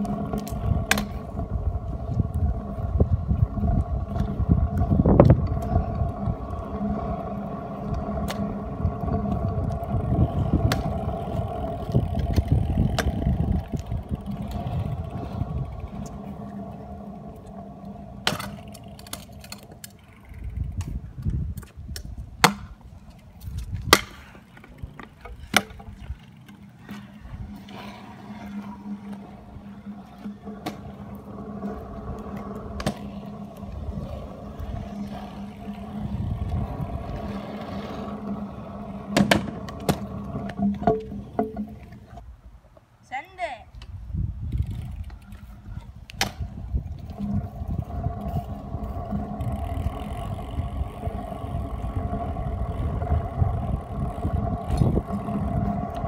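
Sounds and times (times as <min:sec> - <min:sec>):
faint hum: 0:00.0 - 0:21.1
scooter wheels rolling on asphalt: 0:00.0 - 0:56.0.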